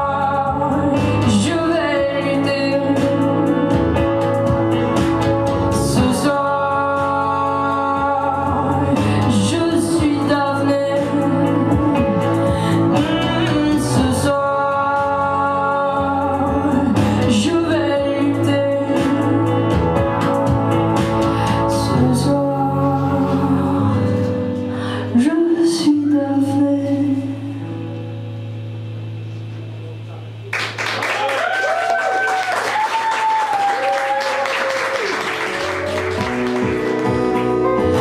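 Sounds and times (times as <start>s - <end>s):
woman singing into a microphone: 0.0s - 28.2s
strummed electric guitar: 0.0s - 30.7s, 34.9s - 38.0s.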